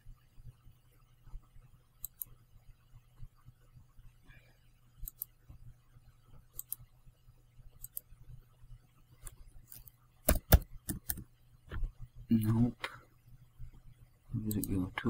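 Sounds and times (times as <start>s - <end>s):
faint low hum: 0.0s - 15.0s
computer mouse clicking: 2.0s - 2.4s, 5.0s - 5.4s, 6.5s - 6.9s, 7.8s - 8.1s, 9.2s - 11.3s, 14.4s - 14.8s.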